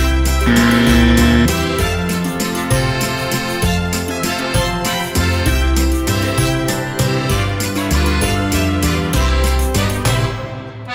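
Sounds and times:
background music with beat and bass: 0.5s - 1.5s.

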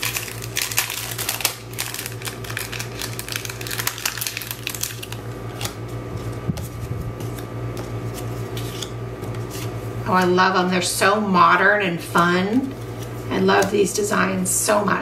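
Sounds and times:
paper pieces rustling and clicking: 0.0s - 6.3s
wrapper crinkling: 0.0s - 6.4s
low steady hum: 0.0s - 15.0s.

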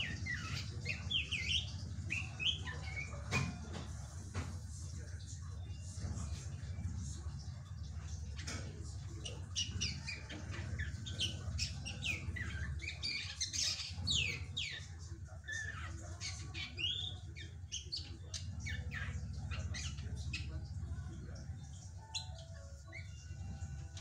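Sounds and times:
steady low hum: 0.0s - 24.0s
bird chirping and whistling: 22.0s - 23.6s.

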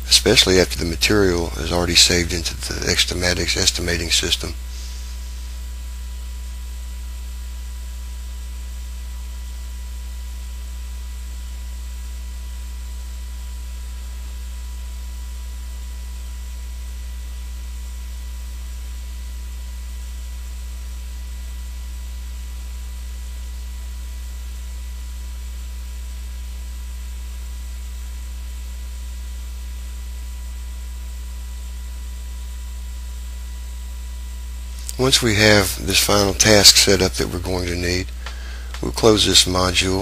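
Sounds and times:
steady hiss: 0.0s - 6.5s, 34.6s - 40.0s
electrical mains hum: 0.0s - 40.0s.

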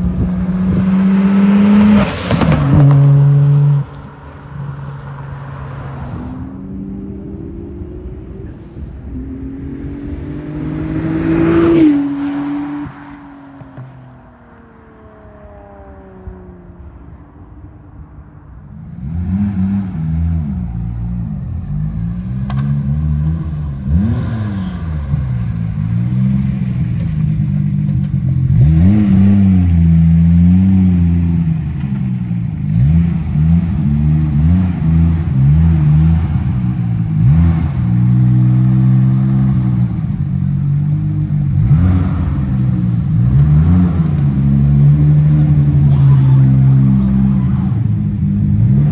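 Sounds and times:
car engine revving: 18.8s - 48.9s.

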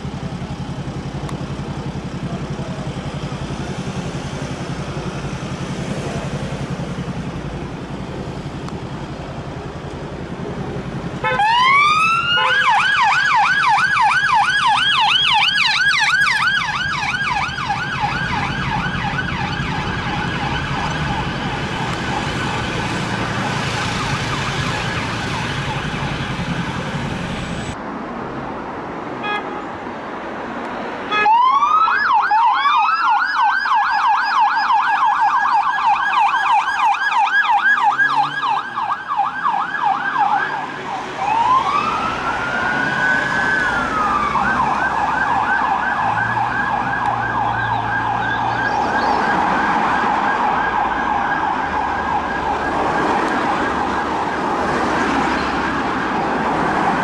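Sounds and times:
street noise: 0.0s - 57.0s
police siren wailing and yelping: 11.2s - 26.9s, 31.1s - 57.0s.

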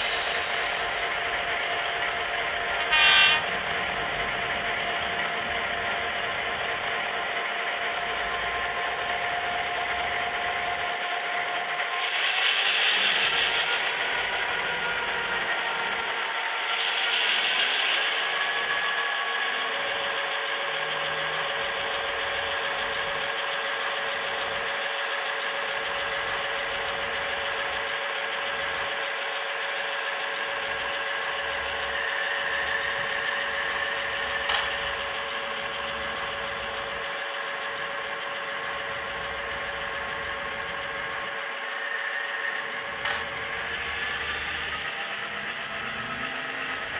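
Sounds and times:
model train motor whirring: 0.0s - 46.9s
sharp click: 34.5s - 34.8s, 43.0s - 43.3s.

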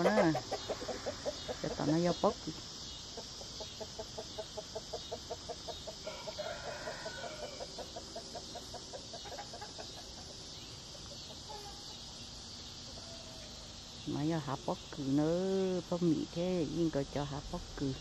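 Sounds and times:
bird clucking: 0.0s - 2.2s, 3.0s - 12.2s
steady high hiss: 0.2s - 18.0s.

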